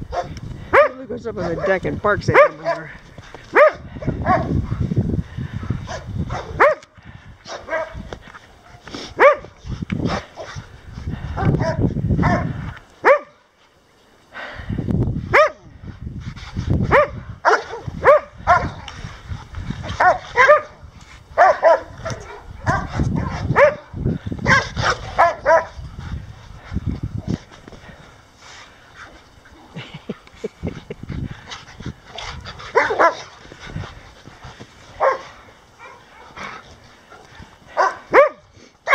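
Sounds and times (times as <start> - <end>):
dog barking: 0.1 - 2.9, 3.5 - 4.5, 5.9 - 6.9, 7.5 - 8.0, 9.2 - 9.5, 11.5 - 13.4, 15.3 - 15.6, 16.9 - 18.8, 20.0 - 20.8, 21.4 - 25.7, 32.7 - 33.2, 35.0 - 36.4, 37.8 - 38.9.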